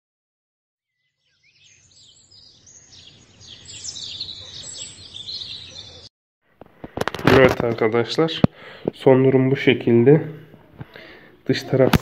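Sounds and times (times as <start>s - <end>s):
small birds chirping: 0.9s - 6.1s.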